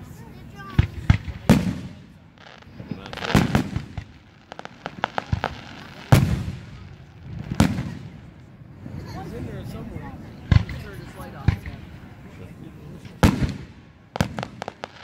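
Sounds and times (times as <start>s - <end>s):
fireworks bangs with echo: 0.6s - 8.6s, 13.0s - 15.0s
sharp crackling pops: 0.7s - 8.6s, 13.2s - 15.0s.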